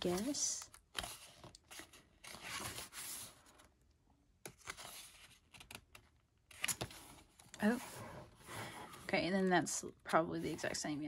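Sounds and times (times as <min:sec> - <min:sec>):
book pages turning: 0:00.0 - 0:03.7, 0:04.4 - 0:09.0.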